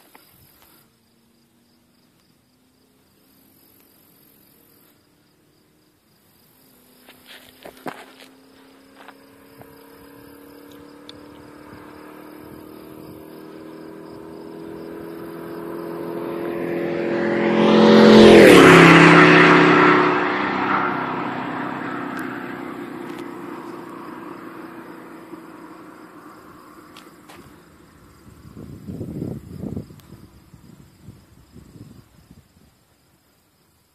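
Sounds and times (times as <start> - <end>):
car engine accelerating past: 6.8 - 28.9
tyre and wind noise: 28.0 - 32.8.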